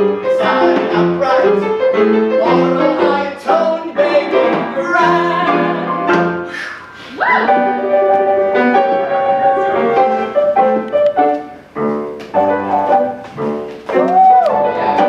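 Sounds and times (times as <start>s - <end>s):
upright piano playing: 0.0s - 6.6s, 7.2s - 15.0s.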